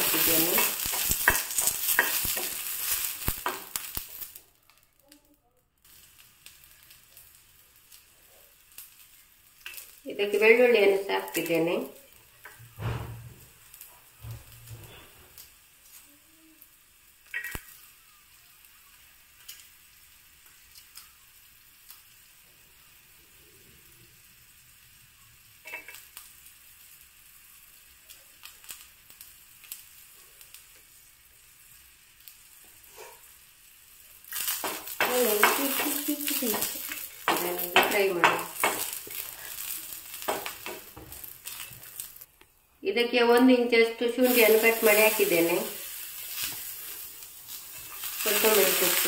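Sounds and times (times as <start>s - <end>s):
garlic cloves tapping into pan: 0.5s - 2.7s, 34.5s - 39.1s, 40.2s - 41.2s.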